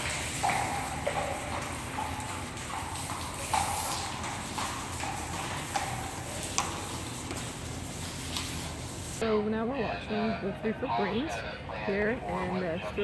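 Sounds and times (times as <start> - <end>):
horse hooves clopping on concrete: 0.0 - 8.8.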